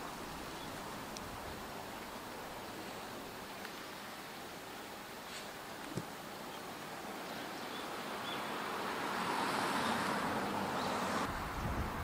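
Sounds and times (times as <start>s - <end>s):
road traffic rushing past: 7.0s - 12.0s
wind rumbling on microphone: 11.2s - 12.0s.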